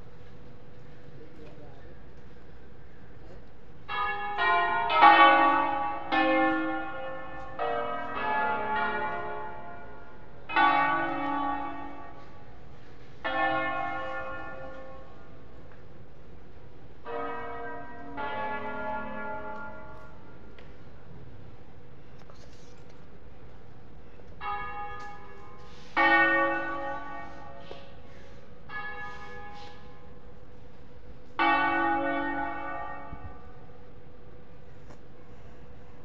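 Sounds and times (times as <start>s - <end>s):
church bells ringing: 3.8s - 21.2s, 24.2s - 34.6s.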